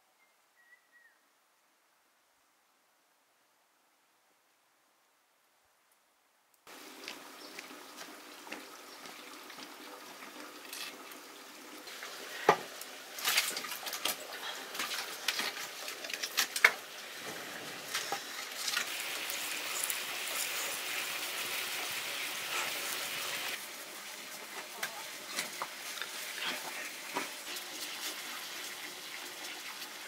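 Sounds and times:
food sizzling in pan: 6.7 - 14.0, 14.7 - 30.0.

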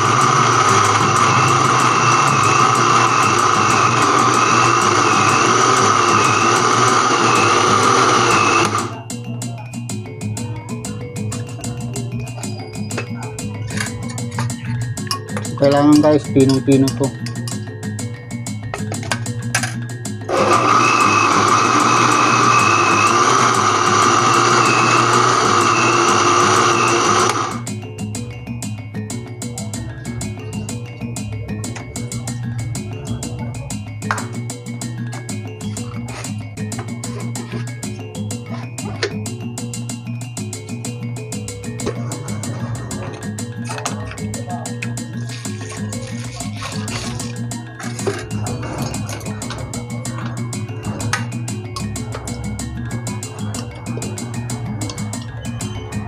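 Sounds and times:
blender motor grinding: 0.0 - 9.0, 20.2 - 27.7
background music with a beat: 0.0 - 56.0.

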